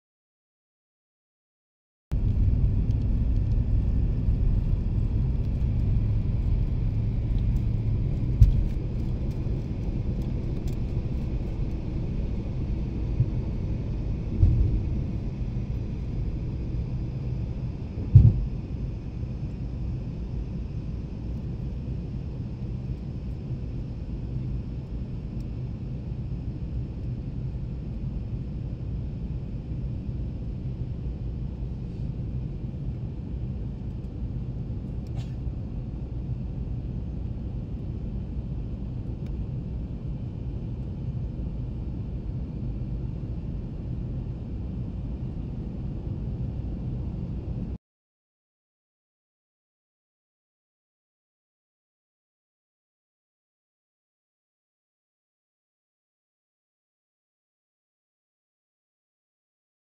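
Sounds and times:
airliner engines rumbling: 2.1s - 47.8s.

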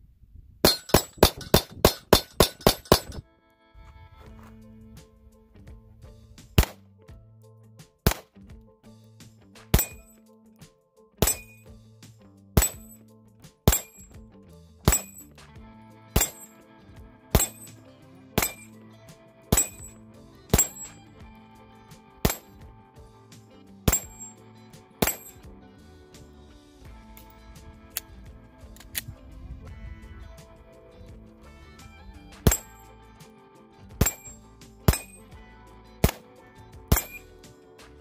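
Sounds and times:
metallic ring of steel targets: 0.6s - 3.2s, 9.7s - 10.1s, 11.2s - 11.7s, 12.6s - 13.0s, 13.7s - 14.2s, 14.9s - 15.4s, 16.2s - 16.5s, 17.3s - 18.8s, 19.5s - 21.2s, 22.2s - 22.6s, 23.9s - 24.4s, 25.0s - 25.4s, 32.4s - 32.9s, 33.9s - 35.3s, 36.9s - 37.4s
soft background music: 2.2s - 38.0s
pistol shots: 6.6s - 6.8s, 8.1s - 8.3s, 9.7s - 10.1s, 11.2s - 11.6s, 12.6s - 13.0s, 14.9s - 15.2s, 16.2s - 16.5s, 17.3s - 17.8s, 18.4s - 18.7s, 19.5s - 19.9s, 20.5s - 21.1s, 22.2s - 22.6s, 23.9s - 24.3s, 25.0s - 25.4s, 34.0s - 35.2s, 36.9s - 37.2s.

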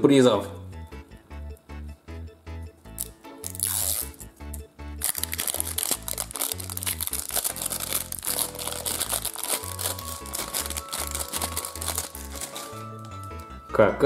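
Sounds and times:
plastic packaging crinkling: 5.0s - 13.4s.

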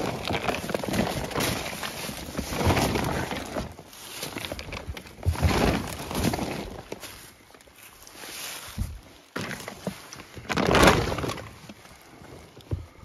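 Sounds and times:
footsteps crunching in dry leaves: 0.0s - 11.9s
tarp rustling over dry leaves: 0.0s - 12.9s.

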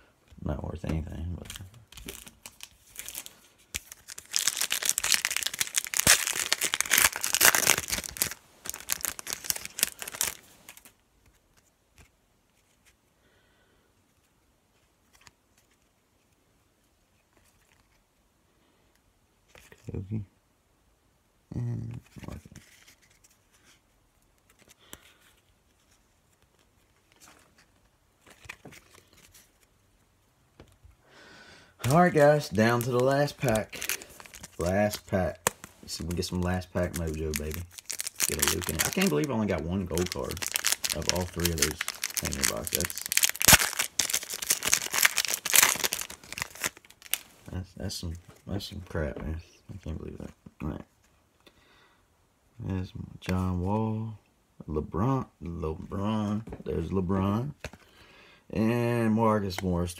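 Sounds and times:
foil wrapper tearing and crinkling: 2.0s - 11.0s, 31.8s - 47.4s.

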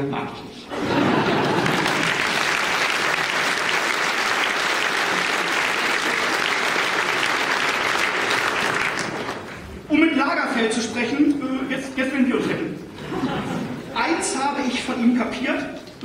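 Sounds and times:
audience applauding: 0.9s - 9.7s.

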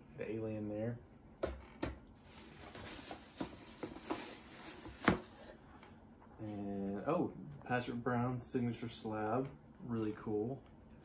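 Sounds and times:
plastic discs and packaging rustling: 2.2s - 5.5s.

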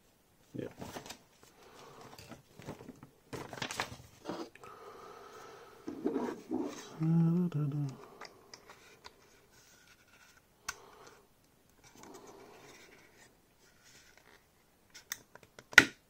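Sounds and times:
plastic parts scraping and rubbing: 1.8s - 4.6s, 5.8s - 7.0s, 7.9s - 11.2s, 11.8s - 15.5s.

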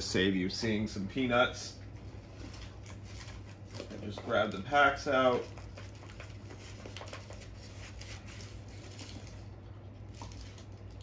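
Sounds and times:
low steady hum: 0.0s - 11.0s
card packs rustling: 2.2s - 11.0s.

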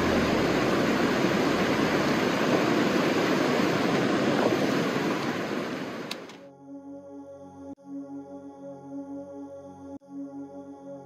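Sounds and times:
water pouring over rocks: 0.0s - 5.6s.

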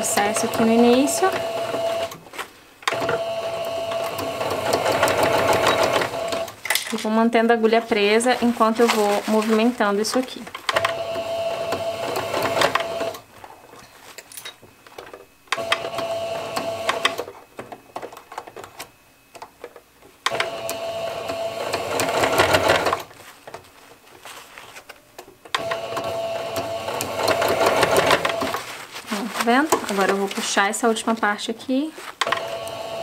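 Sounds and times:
sewing machine stitching: 0.0s - 2.2s, 2.8s - 6.6s, 7.9s - 13.2s, 15.5s - 17.4s, 20.2s - 23.1s, 25.5s - 28.8s, 32.2s - 33.0s
fabric handling clicks and rustling: 5.8s - 10.9s, 22.1s - 25.8s, 27.2s - 32.7s.

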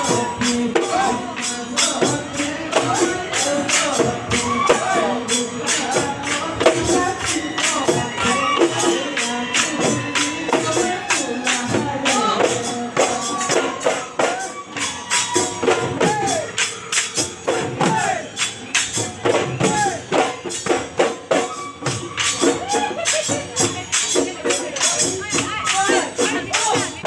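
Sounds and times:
drums beaten in steady rhythm: 0.0s - 27.0s.

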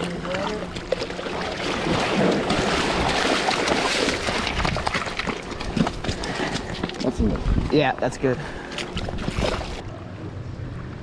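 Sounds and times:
river water splashing: 0.0s - 7.1s, 8.5s - 10.0s.

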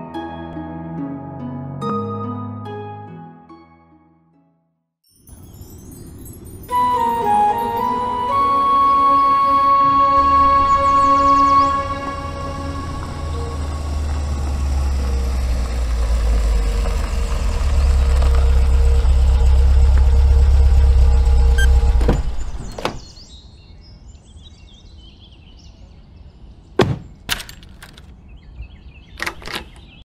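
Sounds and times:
low rumbling cinematic swell: 8.0s - 22.8s
key clicking in door lock: 29.2s - 29.8s.

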